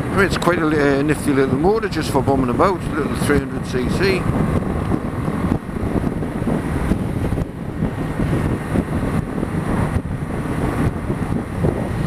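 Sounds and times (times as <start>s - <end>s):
wind buffeting microphone: 0.0s - 12.0s
motorcycle engine running: 3.3s - 12.0s.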